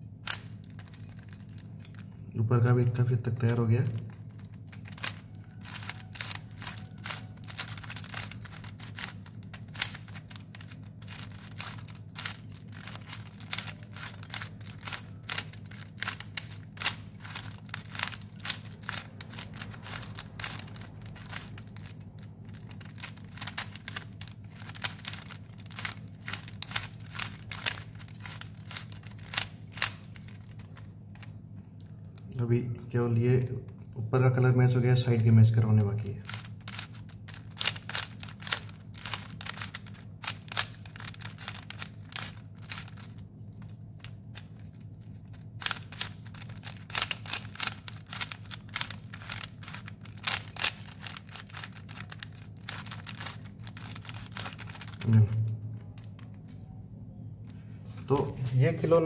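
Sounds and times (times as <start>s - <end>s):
low hum: 0.0s - 59.0s
puzzle cube clicking: 3.8s - 30.9s, 36.3s - 43.1s.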